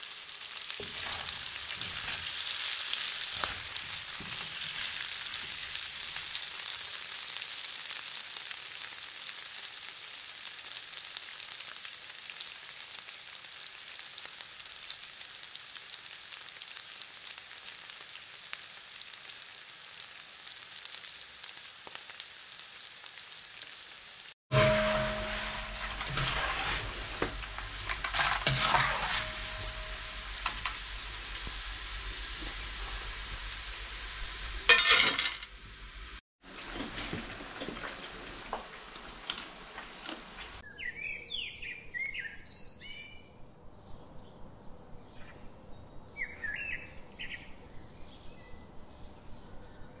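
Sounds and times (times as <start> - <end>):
oil sizzling in a pan: 0.0 - 40.6
metal ladle clinking on pan: 24.5 - 30.8, 34.7 - 35.4.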